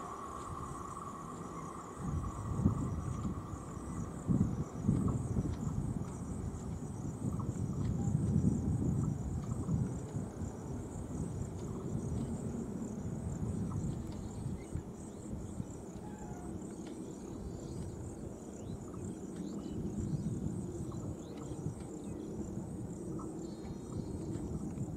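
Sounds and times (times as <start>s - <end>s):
train rumbling: 0.0s - 15.0s
insects buzzing: 0.0s - 24.9s.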